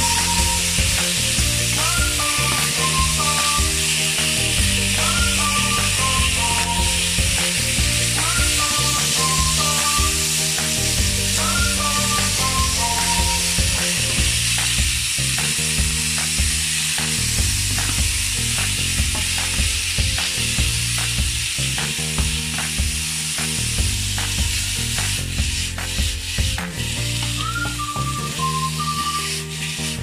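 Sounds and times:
chicken sizzling in a frying pan: 0.0s - 30.0s
soft background music: 0.0s - 30.0s
wooden spatula scraping a pan: 28.8s - 30.0s.

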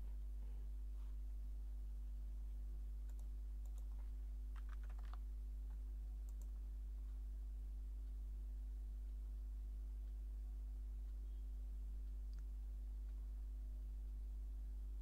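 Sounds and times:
low electrical hum: 0.0s - 15.0s
mouse clicks: 3.1s - 4.0s, 6.3s - 6.6s
keyboard typing: 3.1s - 5.2s, 6.3s - 6.6s.

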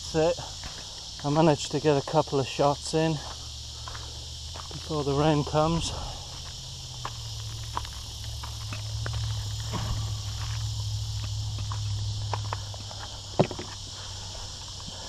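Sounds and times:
insects chirping: 0.0s - 15.0s
footsteps on gravel: 0.5s - 1.5s, 3.1s - 15.0s
low hum: 3.4s - 15.0s.

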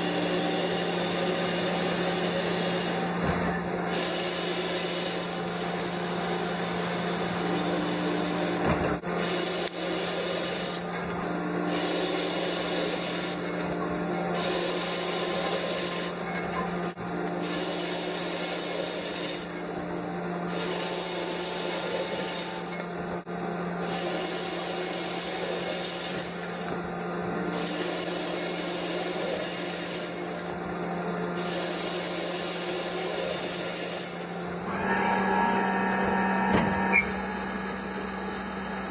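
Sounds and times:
machine low hum: 34.5s - 38.9s.

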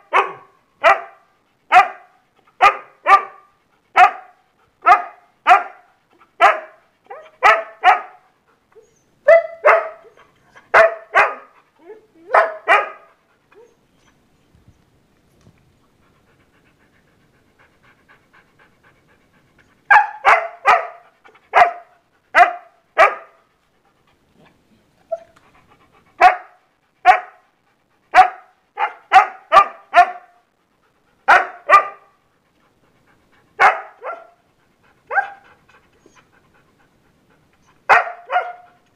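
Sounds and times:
dog barking sharply: 0.1s - 6.8s, 28.2s - 30.3s, 37.9s - 38.7s.

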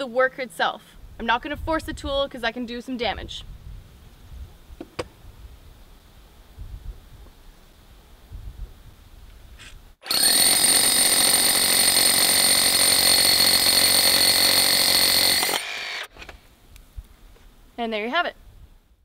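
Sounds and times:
rotary hammer drilling into concrete: 10.0s - 16.1s.

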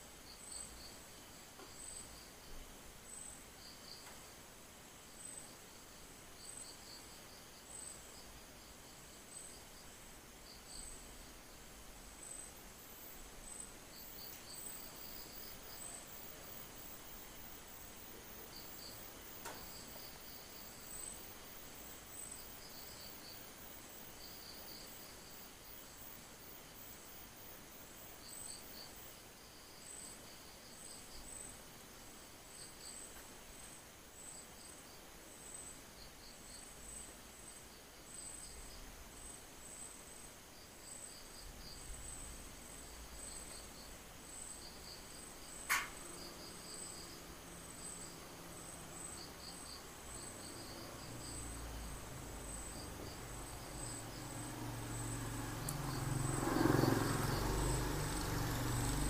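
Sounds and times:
insect trill: 0.2s - 4.2s, 5.2s - 11.3s, 12.2s - 31.6s, 32.2s - 59.0s
irregular insect chirps: 0.2s - 4.3s, 12.2s - 31.6s, 32.2s - 59.0s
sharp click: 45.6s - 46.0s.

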